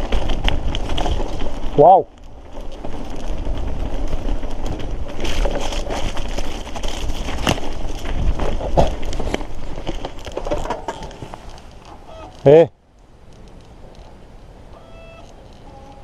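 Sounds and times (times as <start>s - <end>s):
bike rattling: 0.0s - 12.7s
bike tyres crunching over gravel: 0.0s - 16.0s.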